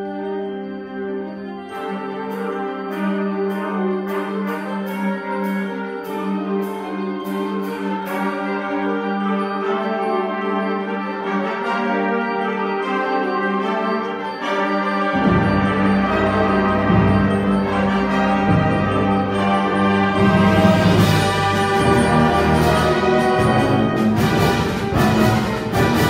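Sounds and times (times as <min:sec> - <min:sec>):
sharp percussion strokes: 0:01.3 - 0:26.0
concert band playing chords: 0:15.0 - 0:26.0.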